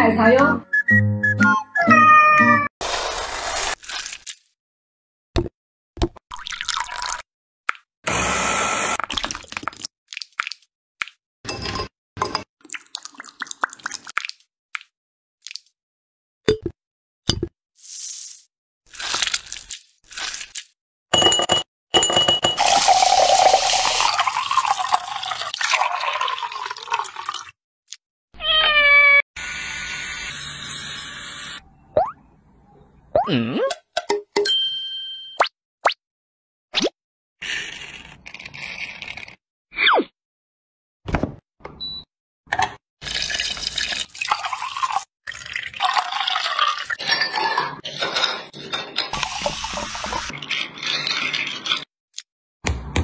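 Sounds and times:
cat meow: 1.8 - 2.7, 28.4 - 29.2
liquid pouring into glass of ice: 6.3 - 7.2, 22.6 - 27.5, 43.0 - 47.6
electric drill boring into coconut: 8.1 - 9.0, 29.4 - 31.6
ice clinking in glass: 21.2 - 25.4.

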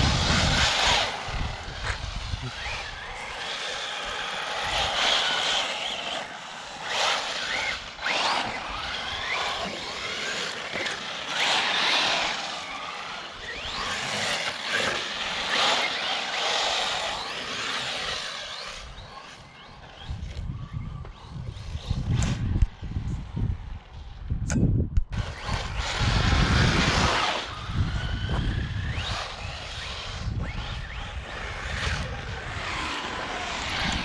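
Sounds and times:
electric motor whine: 0.0 - 24.2, 25.1 - 34.0.

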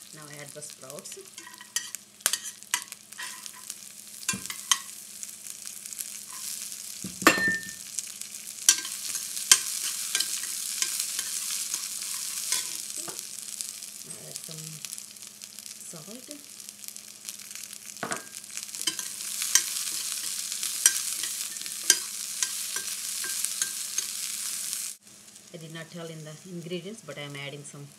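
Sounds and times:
sprouts sizzling in hot oil: 0.0 - 27.9
metal spoon scraping a pan: 1.0 - 5.0, 6.3 - 6.6, 8.7 - 13.2, 18.0 - 24.5.

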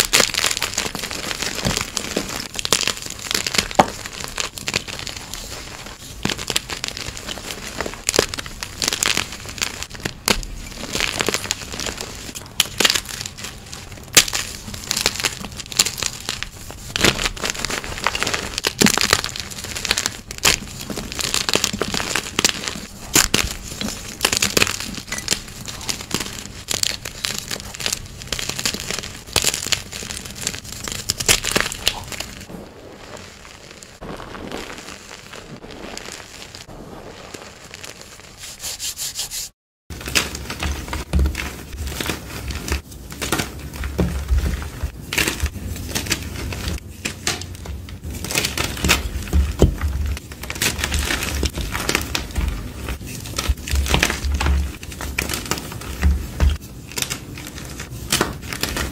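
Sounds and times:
hands crumbling chalk: 0.0 - 58.9.

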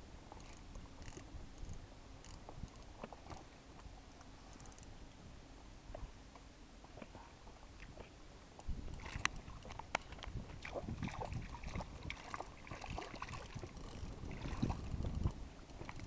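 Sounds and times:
low steady rumble: 0.0 - 16.0
fishing reel clicking: 0.4 - 2.9, 4.5 - 4.9, 13.7 - 16.0.

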